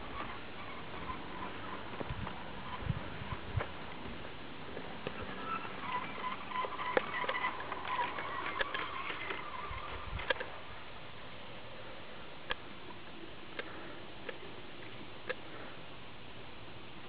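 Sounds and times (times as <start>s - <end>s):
birds chirping: 0.0s - 16.2s
toy train wheels clicking on rails: 5.0s - 10.5s.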